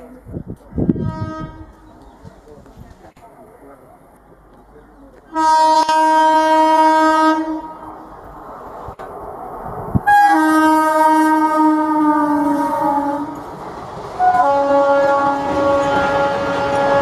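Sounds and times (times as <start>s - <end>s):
rumble of approaching train: 0.0s - 17.0s
locomotive horn blast: 0.9s - 1.9s, 5.3s - 7.9s, 10.1s - 13.4s, 14.2s - 17.0s.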